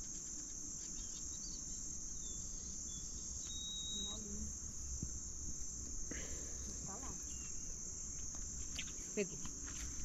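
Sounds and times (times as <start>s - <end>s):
crickets chirping: 0.0s - 10.0s
thin whistles: 3.4s - 4.3s.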